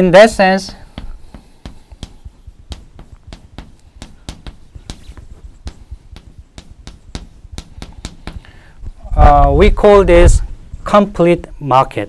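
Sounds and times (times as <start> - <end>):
chalk tapping on blackboard: 0.0 - 9.0.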